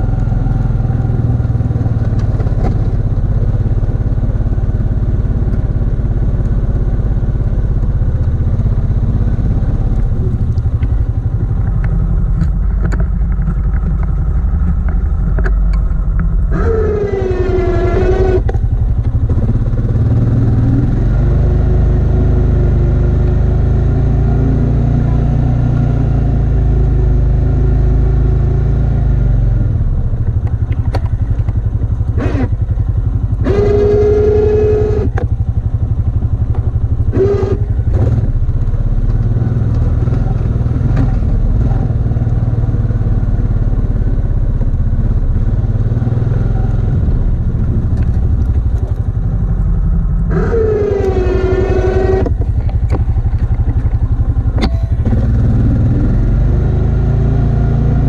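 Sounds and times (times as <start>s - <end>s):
atv engine running: 0.0s - 58.0s
rising whine: 8.2s - 26.9s, 43.5s - 58.0s.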